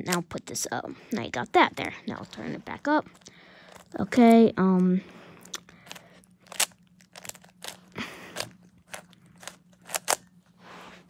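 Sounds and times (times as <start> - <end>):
puzzle cube clicking: 5.9 - 7.8, 8.4 - 10.2.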